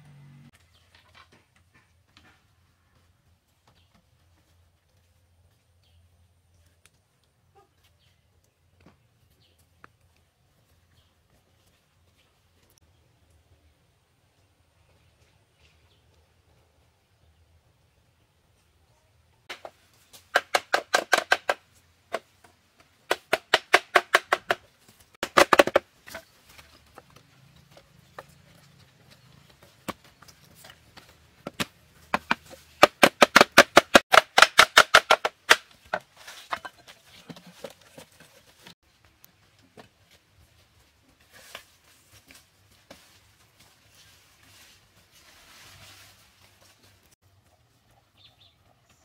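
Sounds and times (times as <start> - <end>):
sharp wooden knocks: 19.5 - 22.3, 23.1 - 24.6, 25.2 - 26.2, 31.4 - 36.7.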